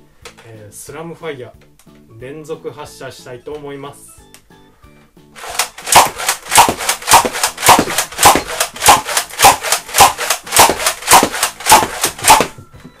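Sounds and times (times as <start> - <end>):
toy blaster popping: 5.4 - 12.6.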